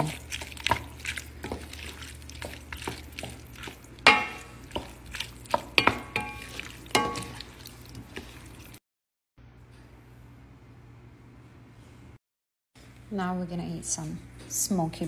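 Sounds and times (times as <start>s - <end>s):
spoon stirring pasta salad: 0.0s - 8.8s
spoon knocking against pot: 4.1s - 4.9s, 5.5s - 7.4s.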